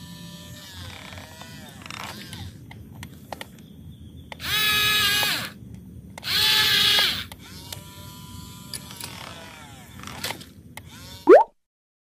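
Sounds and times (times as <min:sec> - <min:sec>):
small electric motors whirring: 0:00.0 - 0:02.6, 0:04.3 - 0:05.6, 0:06.2 - 0:11.2.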